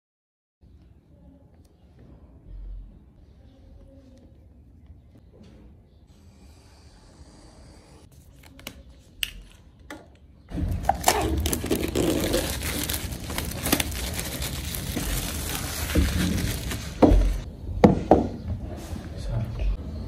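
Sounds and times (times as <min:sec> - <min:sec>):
plastic wrap tearing and crinkling: 0:10.7 - 0:17.5.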